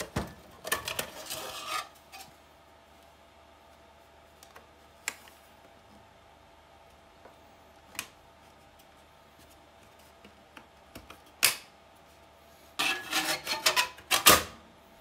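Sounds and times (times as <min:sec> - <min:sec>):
metal scraping and knocking: 0:12.8 - 0:14.3.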